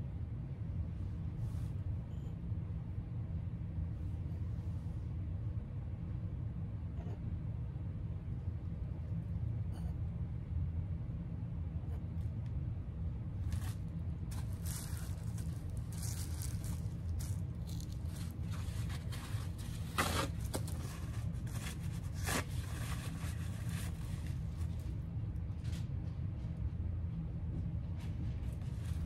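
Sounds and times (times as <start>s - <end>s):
steady low hum: 0.0s - 29.0s
scraping and rustling of materials: 13.4s - 26.0s, 28.0s - 29.0s.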